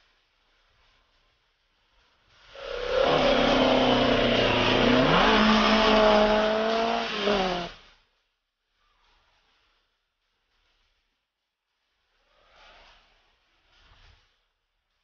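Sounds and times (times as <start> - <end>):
racing car engine revving: 2.6 - 7.8.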